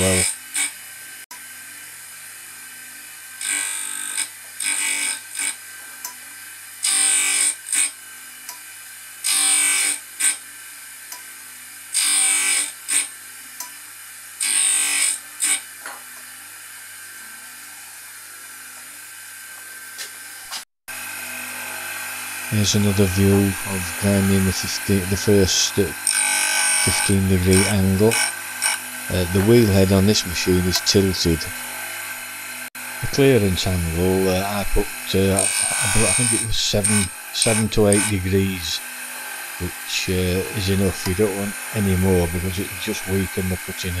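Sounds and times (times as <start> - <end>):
grinder motor hum: 0.0 - 44.0.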